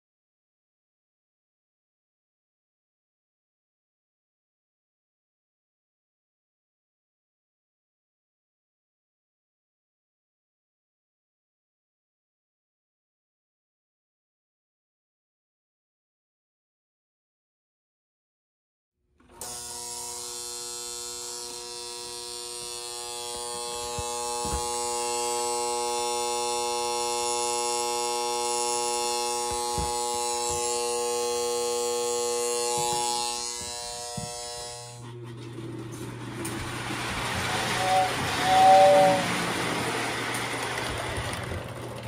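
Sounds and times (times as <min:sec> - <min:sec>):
electric buzz and hum: 0:19.2 - 0:36.2
toy train whistle hoot: 0:19.3 - 0:29.5, 0:37.4 - 0:39.8
toy train running: 0:19.3 - 0:42.0.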